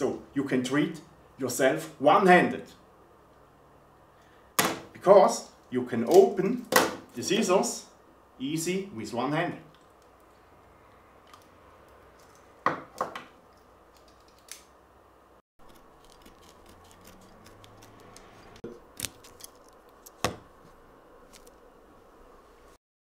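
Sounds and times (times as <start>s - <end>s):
scissors snipping dressing material: 15.6s - 20.2s.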